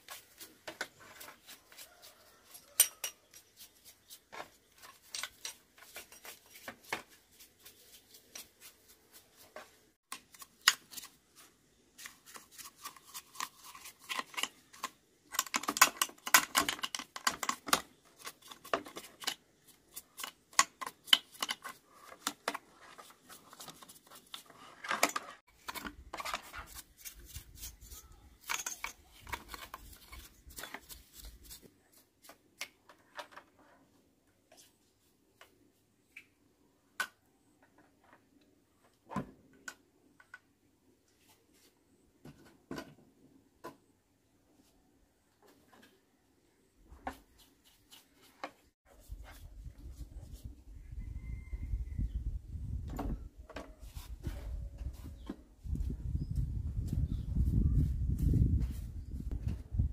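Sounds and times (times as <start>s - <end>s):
stiff brush scrubbing: 0.0s - 14.9s, 25.7s - 28.5s, 29.1s - 32.3s, 47.1s - 50.6s
plastic and metal parts clicking: 13.3s - 22.6s.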